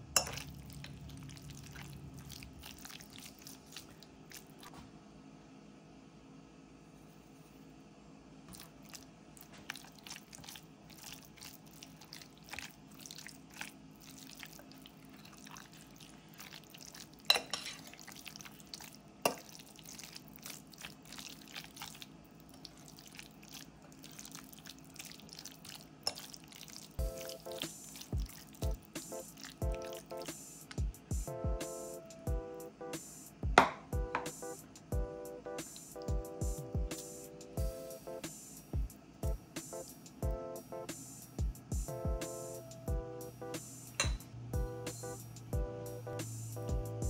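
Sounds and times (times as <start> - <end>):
fork mixing wet filling: 0.2 - 4.8, 8.5 - 31.1
fork knocking against bowl: 44.0 - 44.3.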